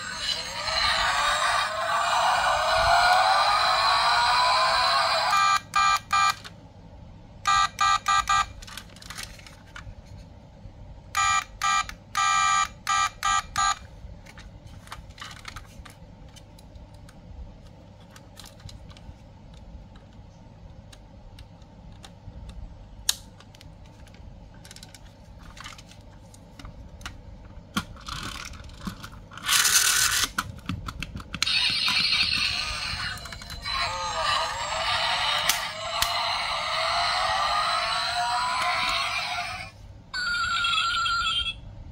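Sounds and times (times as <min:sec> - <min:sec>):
plastic and metal parts handled: 0:08.6 - 0:10.2, 0:14.2 - 0:20.1, 0:23.4 - 0:31.4.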